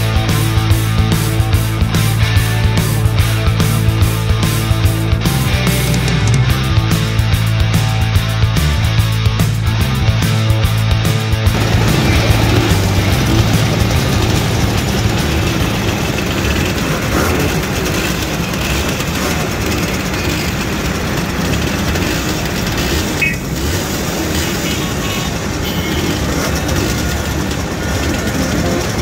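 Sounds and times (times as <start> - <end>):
mopeds running: 0.0 - 29.0.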